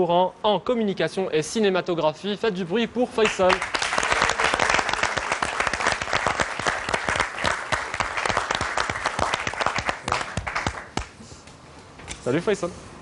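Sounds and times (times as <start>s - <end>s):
audience applauding: 3.2s - 11.2s.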